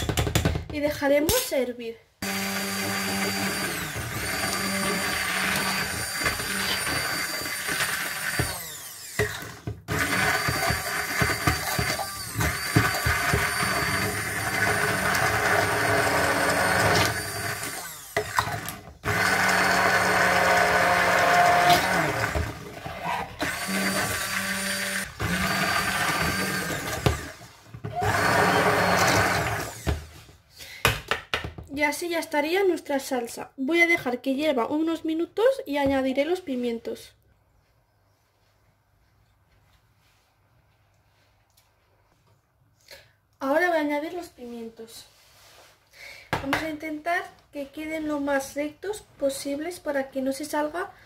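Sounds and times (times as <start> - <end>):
stick blender motor: 2.2 - 30.1.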